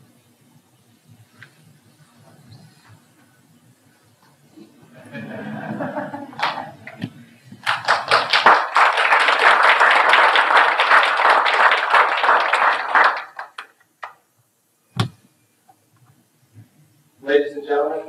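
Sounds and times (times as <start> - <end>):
audience applauding: 6.3 - 7.0, 7.6 - 14.2
single thump: 15.0 - 15.2.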